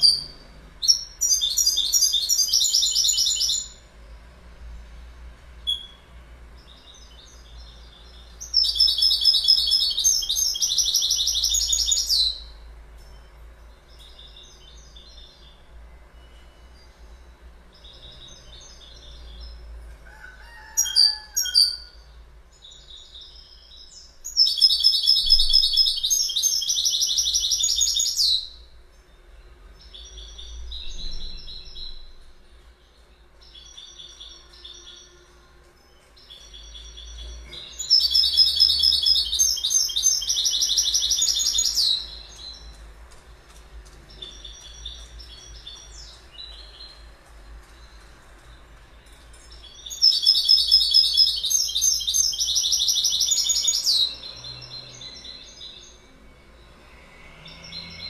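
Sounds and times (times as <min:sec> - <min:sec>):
goldfinch singing: 0:06.6 - 0:13.3, 0:36.1 - 0:42.8, 0:49.0 - 0:56.0.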